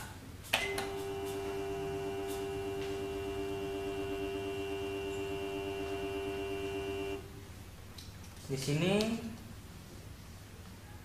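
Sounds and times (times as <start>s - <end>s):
thermal printer humming: 0.6s - 7.4s.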